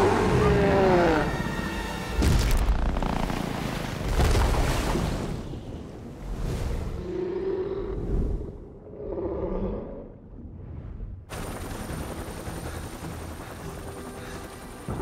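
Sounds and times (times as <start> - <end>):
deep underwater creature growl: 7.0 - 10.7
helicopter cabin noise: 11.3 - 15.0.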